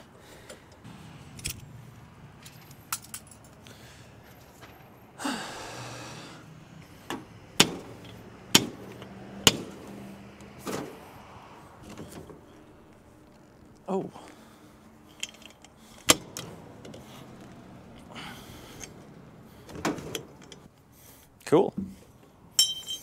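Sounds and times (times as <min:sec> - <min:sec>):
scrap metal clinking: 0:02.4 - 0:04.9, 0:15.0 - 0:17.1, 0:19.9 - 0:20.7, 0:22.5 - 0:23.0.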